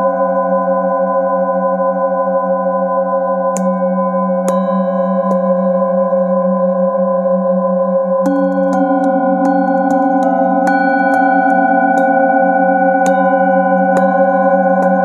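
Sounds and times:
singing bowls ringing: 0:02.8 - 0:15.0
mallet striking singing bowl: 0:03.6 - 0:06.4, 0:08.2 - 0:15.0.

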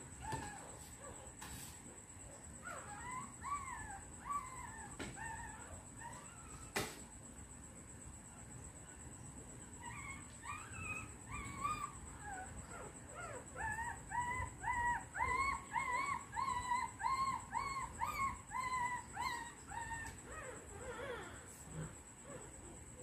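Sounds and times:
puppy whimpering cries: 0:02.6 - 0:06.7, 0:09.8 - 0:21.5.

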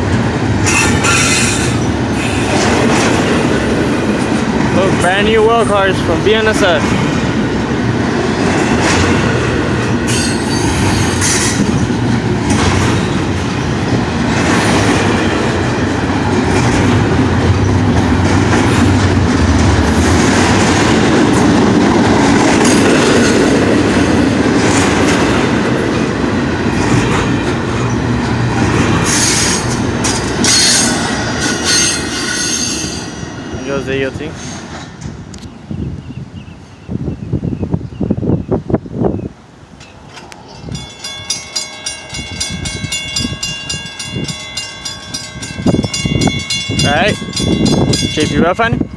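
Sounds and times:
wheels clacking over rail joints: 0:00.0 - 0:33.2
train wheels rumbling on rail: 0:00.0 - 0:48.9
high-pitched wheel squeals: 0:00.6 - 0:02.4.

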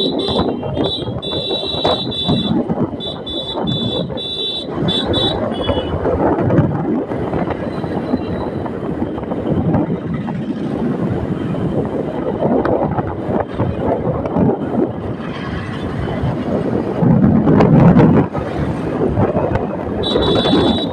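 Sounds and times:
motorcycle running: 0:00.0 - 0:20.9
road noise: 0:00.0 - 0:20.9
wind gusting over microphone: 0:00.0 - 0:20.9.

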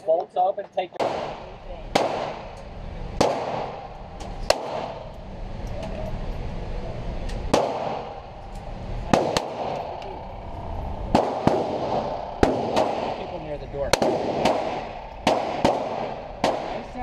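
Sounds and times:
pistol shots indoors: 0:01.0 - 0:02.5, 0:03.2 - 0:05.0, 0:07.5 - 0:08.2, 0:09.1 - 0:09.8, 0:11.1 - 0:17.0
faint gunshot cracks: 0:03.2 - 0:03.8, 0:07.5 - 0:08.1, 0:13.9 - 0:16.9.

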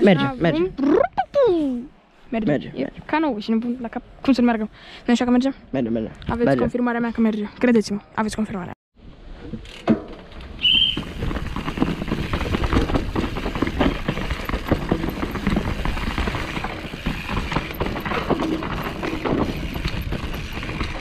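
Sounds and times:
bike rattling over rocky ground: 0:09.7 - 0:21.0.

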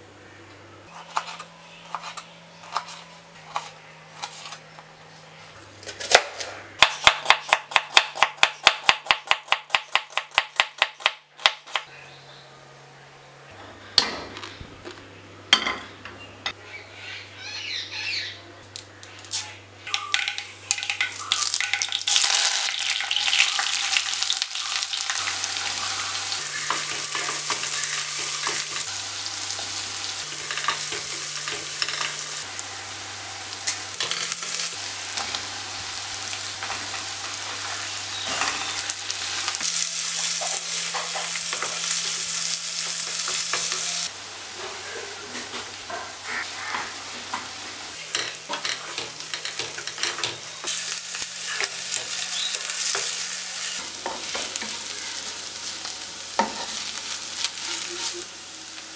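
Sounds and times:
vegetables sizzling in hot oil: 0:20.7 - 0:44.6, 0:45.7 - 0:58.9.

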